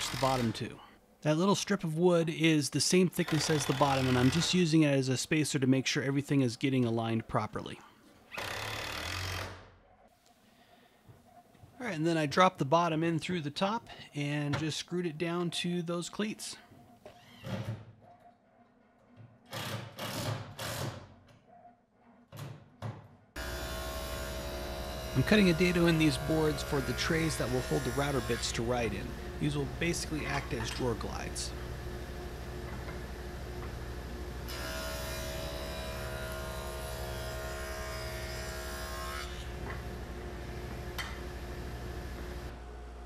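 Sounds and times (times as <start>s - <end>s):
table saw cutting wood: 0.0s - 0.6s, 3.2s - 4.6s, 23.4s - 42.5s
cordless drill driving screws: 3.3s - 4.5s, 8.3s - 9.6s.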